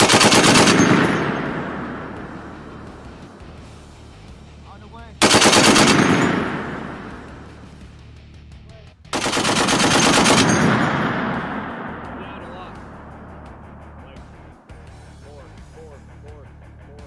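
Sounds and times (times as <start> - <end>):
machine gun bursts with echo: 0.0 - 3.4, 5.2 - 7.8, 9.1 - 13.7.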